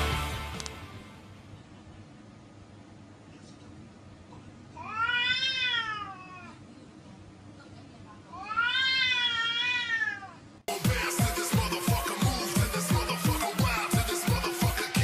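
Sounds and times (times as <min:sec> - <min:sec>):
electronic dance music: 0:00.0 - 0:01.1, 0:10.7 - 0:15.0
cat yowling: 0:04.8 - 0:06.6, 0:08.3 - 0:10.4.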